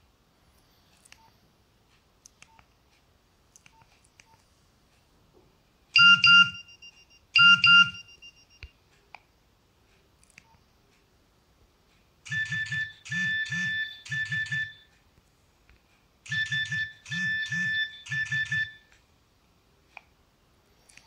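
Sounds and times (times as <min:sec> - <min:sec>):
electronic alert beeps: 0:06.0 - 0:08.6, 0:12.3 - 0:14.9, 0:16.3 - 0:18.9.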